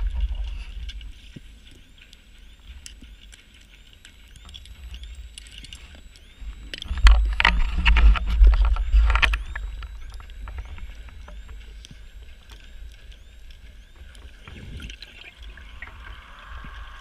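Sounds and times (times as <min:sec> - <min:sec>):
exhaled bubbles underwater: 0:00.0 - 0:01.6, 0:04.5 - 0:17.0
faint clicks: 0:00.0 - 0:17.0.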